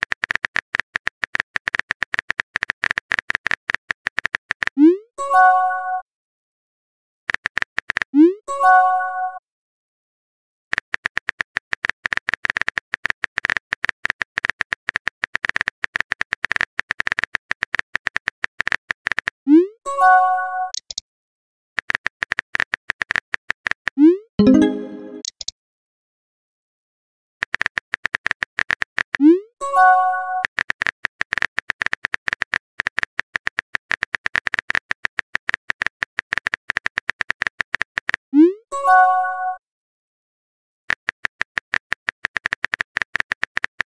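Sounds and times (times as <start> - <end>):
phone keyboard typing clicks: 0.0 - 4.8, 7.3 - 8.1, 10.7 - 19.4, 27.4 - 29.2, 30.4 - 38.2, 40.9 - 43.9
keyboard typing clicks: 20.7 - 21.0, 24.4 - 25.5
short multi-note chime: 24.4 - 25.2.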